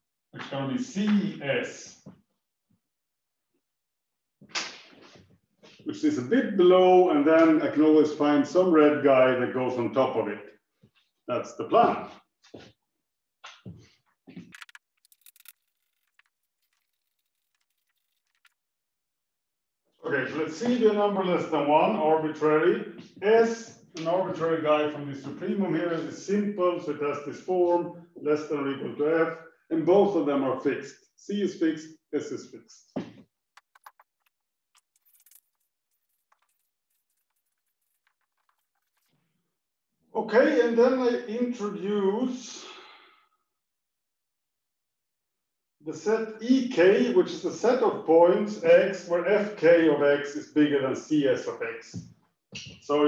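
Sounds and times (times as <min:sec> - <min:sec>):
chalk tapping and scratching: 0:14.5 - 0:18.6, 0:33.6 - 0:39.2.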